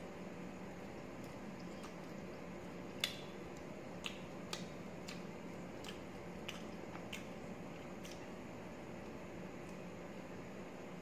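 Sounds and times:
faint steady hum: 0.0 - 11.0
eating sounds: 1.2 - 9.1.

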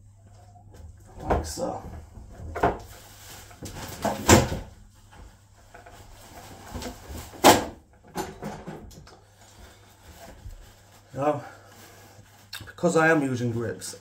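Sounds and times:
knocks and clunks of handling: 0.7 - 10.6.

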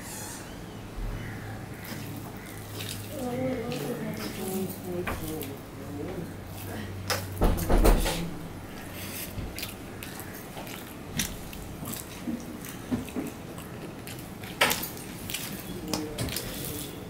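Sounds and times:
person biting and chewing: 8.8 - 17.0.

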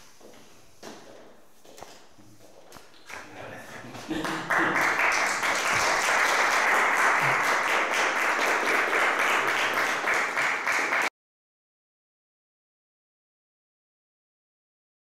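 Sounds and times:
audience applauding: 3.1 - 11.1.

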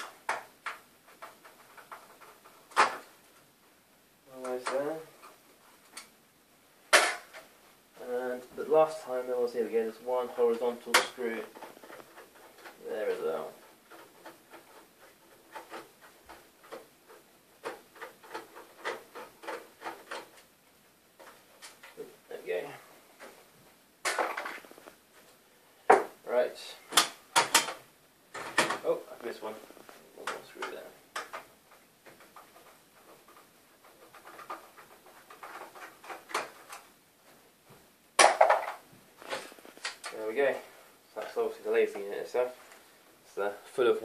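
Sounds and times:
clatter of parts: 30.2 - 36.9.

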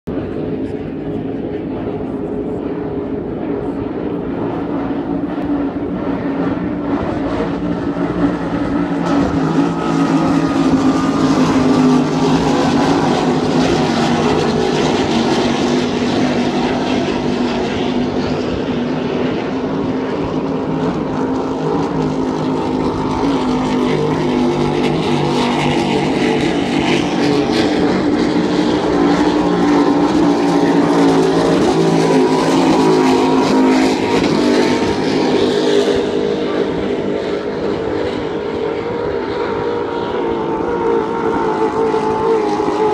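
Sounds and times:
powerboat engines droning: 0.1 - 42.9.

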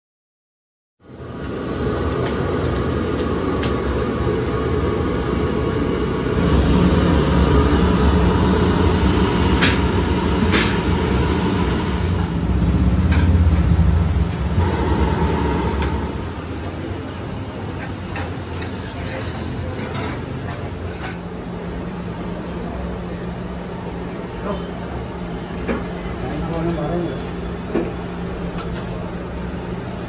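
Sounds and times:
gas burners roaring: 1.0 - 30.0
oil frying hiss: 1.8 - 13.1.

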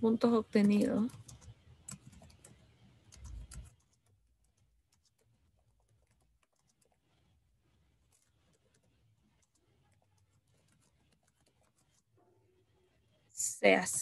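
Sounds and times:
keyboard typing clicks: 0.5 - 7.0.

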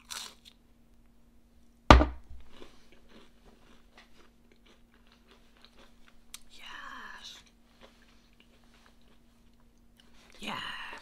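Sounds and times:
crunchy bite: 0.0 - 0.6
crunchy chewing: 0.0 - 0.6, 2.3 - 6.5, 7.3 - 11.0.

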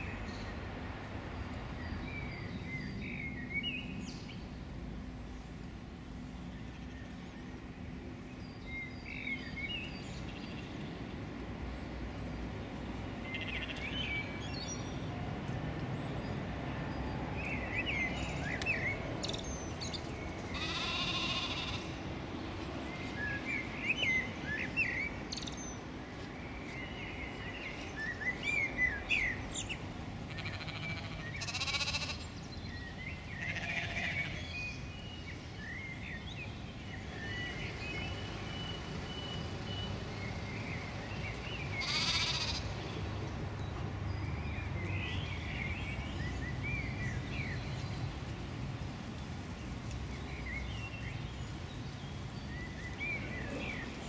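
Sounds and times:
songbirds chirping: 0.0 - 54.0
sheep bleating: 20.6 - 22.0, 30.3 - 32.2, 33.4 - 34.4, 41.8 - 42.7.

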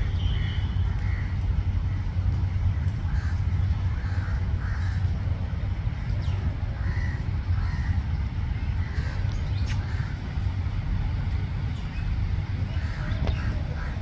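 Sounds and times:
low rumble: 0.0 - 14.0
crows calling: 0.2 - 2.0, 2.6 - 10.4, 12.7 - 14.0.

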